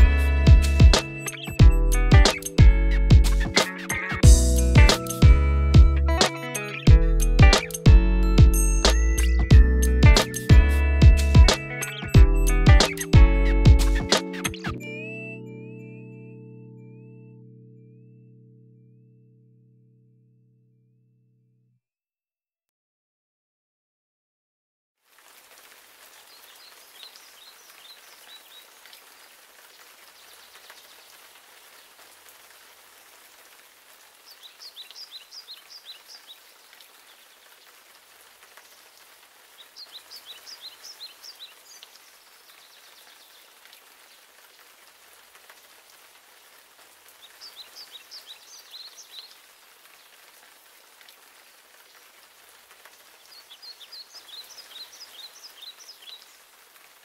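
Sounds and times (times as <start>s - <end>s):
rain falling on a lake: 0.0s - 15.1s, 25.0s - 57.0s
songbird singing: 34.3s - 37.3s, 39.6s - 43.4s, 47.2s - 49.4s, 53.2s - 56.4s.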